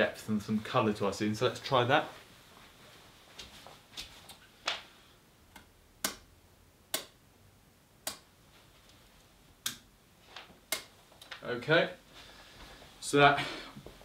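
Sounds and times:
sharp bright clicks: 8.0 - 8.2, 9.6 - 9.9, 10.7 - 11.4.

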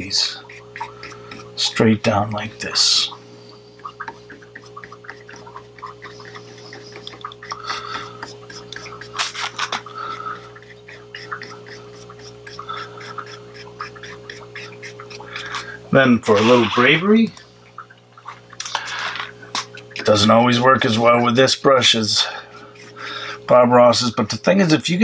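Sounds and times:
steady low hum: 0.0 - 25.0
paintbrush rubbing on paper: 4.2 - 17.0, 22.2 - 23.0.

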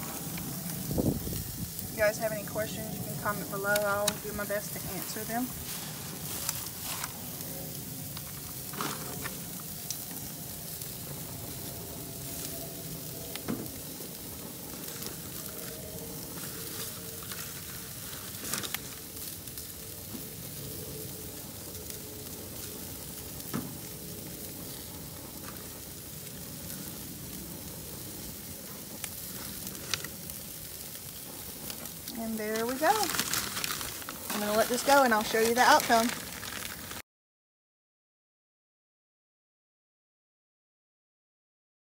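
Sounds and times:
beef sizzling on grill: 0.0 - 37.0.

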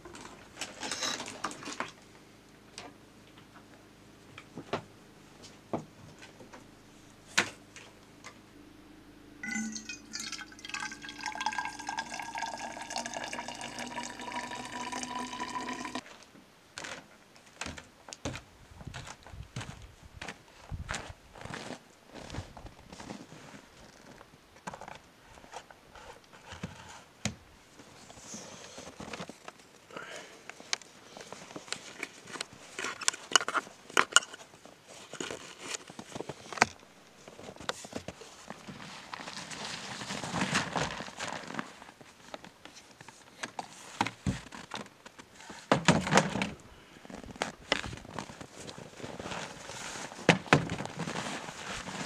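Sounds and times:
rustling: 37.2 - 45.7, 46.8 - 52.0.

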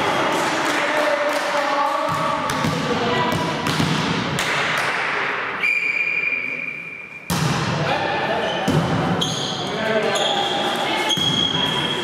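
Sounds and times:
players' voices echoing: 0.0 - 12.0
referee's whistle: 5.6 - 7.2.

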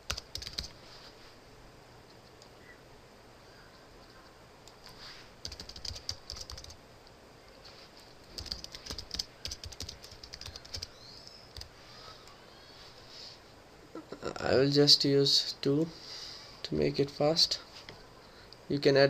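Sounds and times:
computer keyboard typing: 0.0 - 0.8, 5.4 - 6.8, 8.2 - 11.7.

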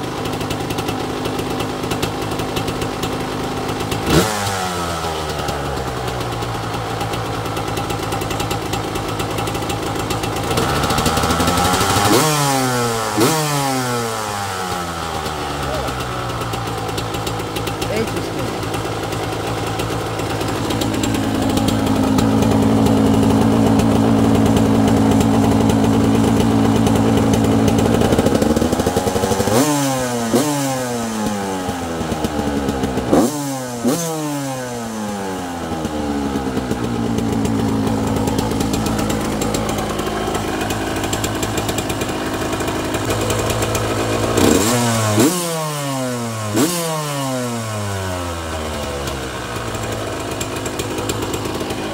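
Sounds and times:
two-stroke engine revving: 0.0 - 51.9.

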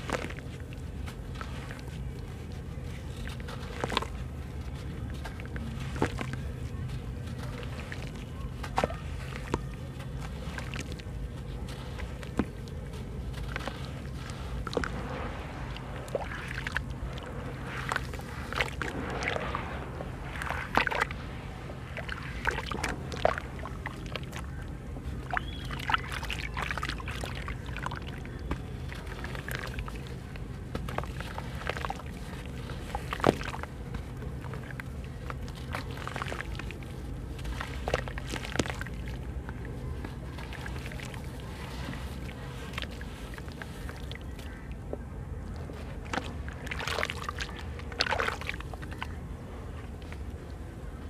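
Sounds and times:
steady low hum: 0.0 - 51.0
hands splashing in water: 13.3 - 44.7, 45.5 - 49.2
water dripping: 13.5 - 30.2.

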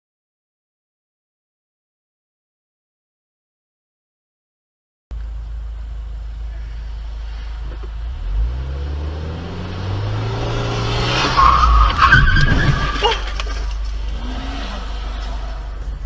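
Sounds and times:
car engine revving: 5.7 - 16.0
tyre squeal: 11.0 - 16.0.

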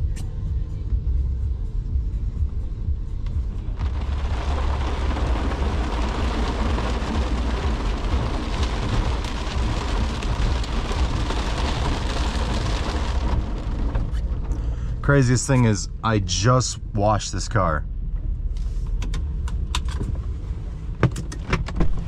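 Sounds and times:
heavy rain on car roof: 3.2 - 15.6.

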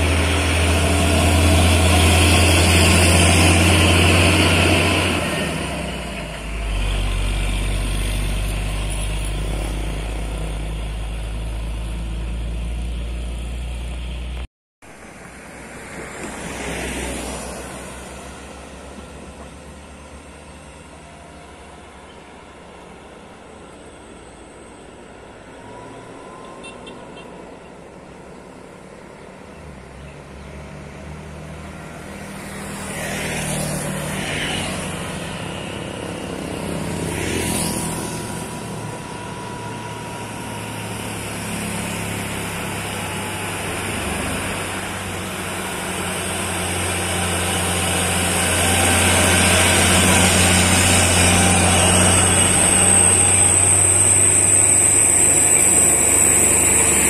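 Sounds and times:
diesel trucks labouring uphill: 0.0 - 57.0
motorcycles passing: 30.7 - 57.0.

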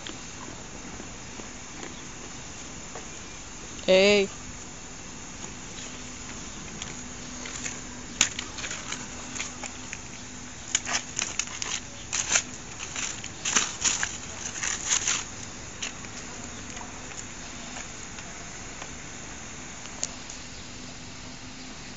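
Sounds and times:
goat tearing paper: 6.9 - 10.0, 10.6 - 16.9.

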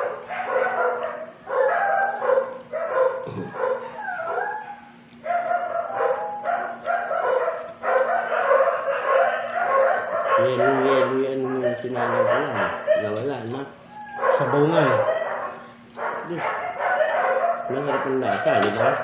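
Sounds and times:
faint low hum: 0.0 - 19.0
dog whining and yipping: 0.4 - 8.6, 13.9 - 17.5.

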